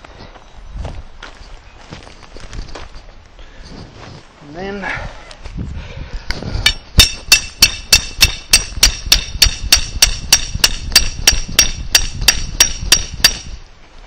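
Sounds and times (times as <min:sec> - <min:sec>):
hammer striking stake: 0:06.6 - 0:13.6.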